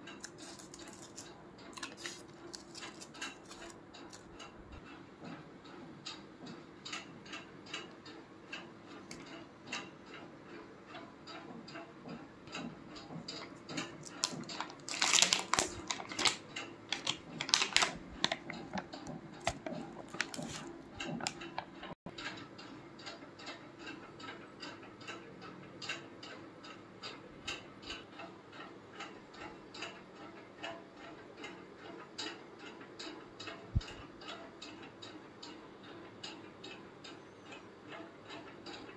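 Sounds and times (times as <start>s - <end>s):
steady regular ticking: 0.0s - 38.9s
aluminium foil crinkling: 0.2s - 4.3s, 14.0s - 21.5s.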